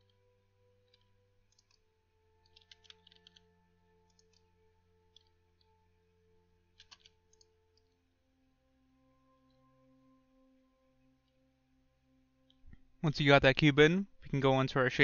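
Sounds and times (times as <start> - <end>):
mouse and keyboard clicks: 0.9 - 1.8, 2.4 - 3.4, 4.1 - 4.5, 6.8 - 8.0.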